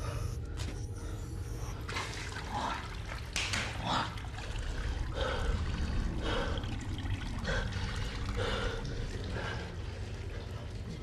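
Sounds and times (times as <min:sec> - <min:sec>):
low steady rumble: 0:04.2 - 0:11.0.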